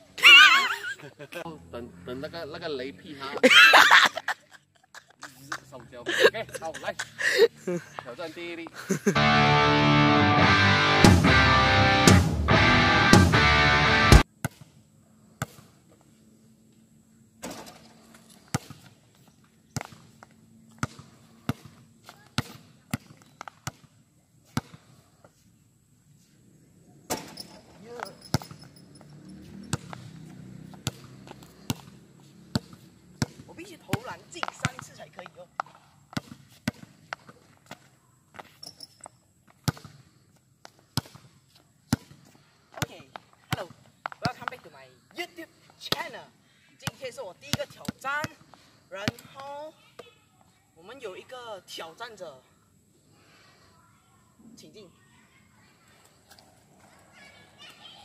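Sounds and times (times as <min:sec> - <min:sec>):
basketball bouncing on concrete: 0:18.5 - 0:18.9, 0:19.7 - 0:23.9, 0:28.0 - 0:38.7, 0:39.5 - 0:40.0, 0:40.6 - 0:41.3, 0:41.9 - 0:44.7, 0:45.8 - 0:46.2, 0:46.8 - 0:50.1.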